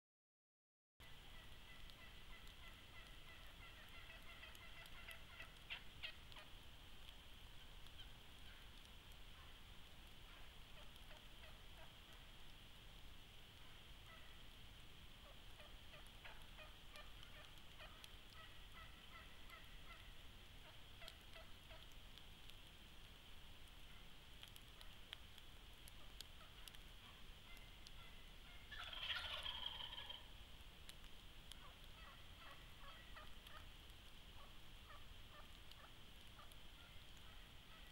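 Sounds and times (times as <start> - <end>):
turkey gobbling: 1.0 - 6.6, 7.6 - 9.6, 10.2 - 12.3, 13.6 - 14.4, 15.2 - 22.0, 25.9 - 30.3, 31.5 - 33.7, 34.4 - 37.9
background hiss: 1.0 - 37.9.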